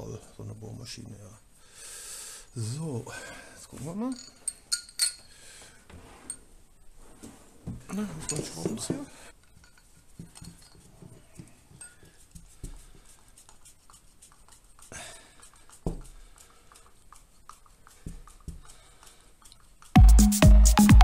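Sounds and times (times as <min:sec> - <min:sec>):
hand tools clattering: 0:07.9 - 0:12.2.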